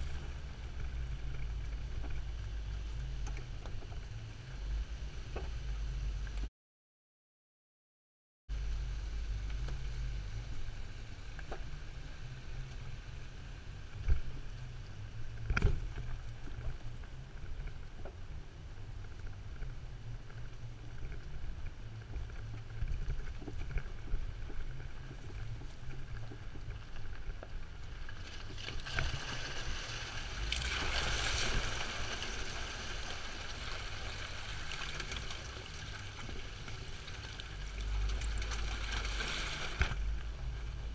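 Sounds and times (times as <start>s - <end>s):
vehicle engine and tyres rumbling: 0.0s - 6.5s, 8.5s - 40.9s
tyres rushing through water: 28.2s - 40.9s.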